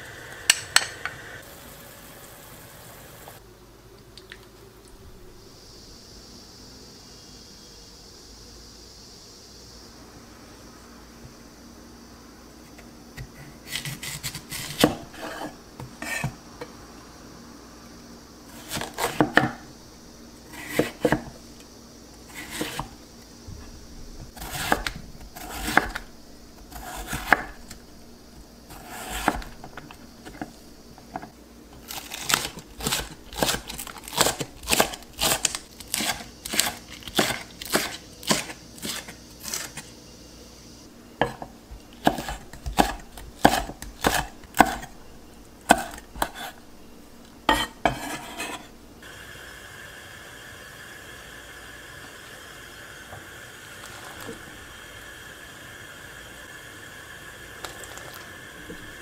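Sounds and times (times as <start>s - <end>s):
knife chopping on wooden board: 32.2s - 39.7s, 41.2s - 44.9s, 45.7s - 46.5s, 47.5s - 48.6s.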